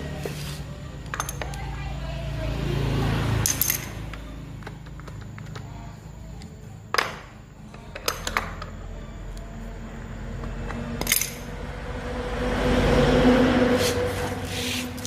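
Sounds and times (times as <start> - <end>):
metal tools clinking: 1.1 - 1.6, 3.4 - 4.2, 11.0 - 11.6.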